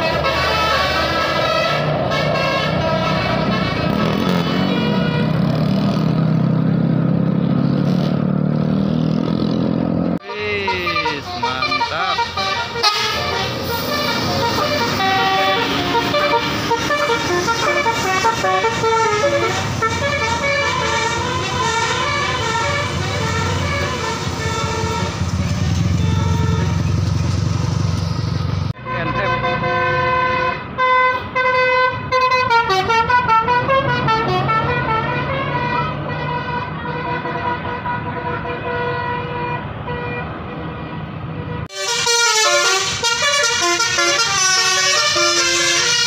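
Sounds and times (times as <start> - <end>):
bus horn warbling melody: 0.0 - 5.8, 10.2 - 27.0, 28.8 - 46.0
motorcycles passing: 0.0 - 30.1
road traffic engine hum: 0.0 - 46.0
motorcycle engine passing: 3.4 - 10.1.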